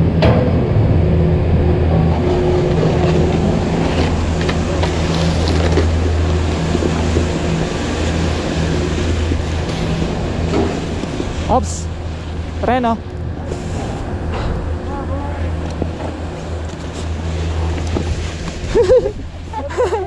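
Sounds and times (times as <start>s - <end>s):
chairlift machinery humming: 0.0s - 20.0s
snowboards scraping on snow: 2.2s - 11.2s.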